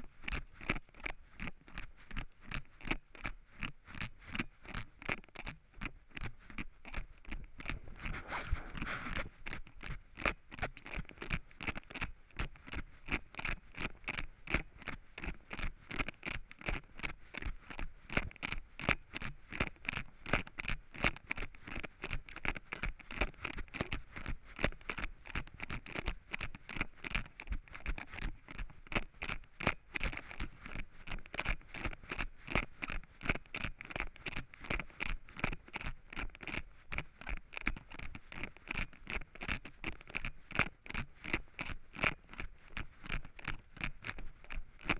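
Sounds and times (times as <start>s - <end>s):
running footsteps on dry leaves: 7.8s - 9.4s.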